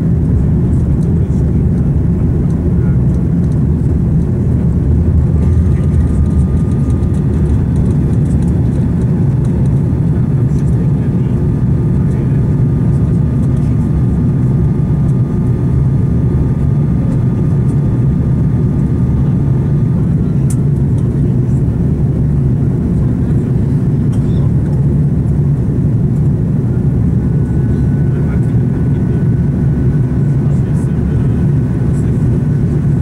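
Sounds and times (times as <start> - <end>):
airliner cabin noise: 0.0 - 33.0.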